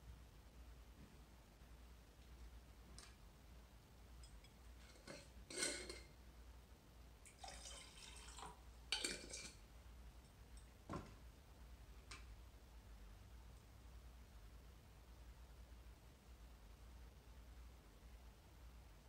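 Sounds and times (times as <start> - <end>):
water sloshing in jar: 7.3 - 9.6
glass jar clink: 8.9 - 9.6.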